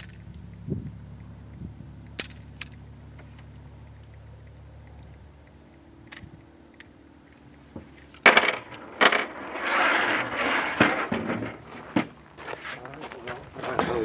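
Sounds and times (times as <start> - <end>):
brass cases clattering onto table: 8.2 - 12.2.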